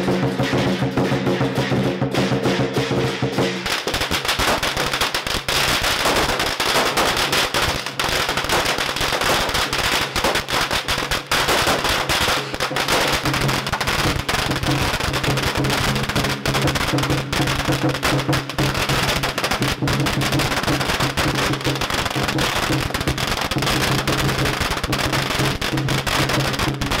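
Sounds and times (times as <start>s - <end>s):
music: 0.0s - 4.2s, 13.2s - 27.0s
firecrackers popping: 0.0s - 27.0s.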